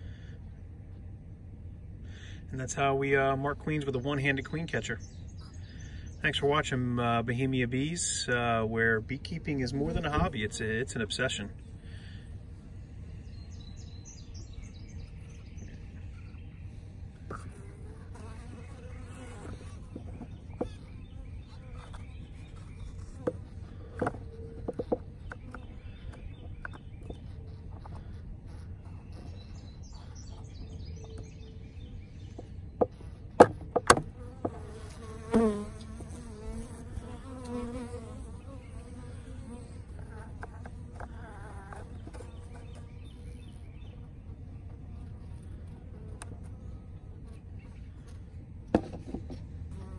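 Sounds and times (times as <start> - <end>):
honeybees buzzing: 2.7 - 49.9
bee flying close: 17.2 - 26.3, 34.0 - 43.9, 49.5 - 49.9.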